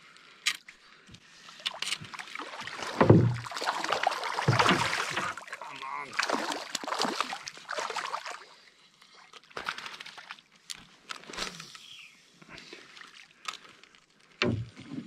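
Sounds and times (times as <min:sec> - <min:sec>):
fish splashing in water: 0:02.2 - 0:08.5.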